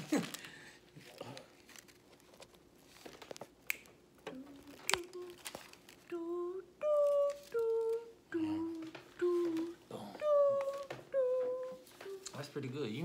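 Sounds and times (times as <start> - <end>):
woman humming a tune: 4.2 - 12.4.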